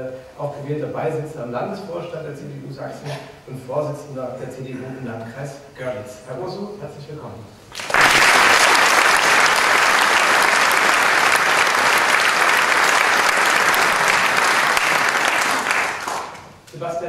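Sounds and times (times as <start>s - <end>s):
audience applauding: 7.7s - 16.6s.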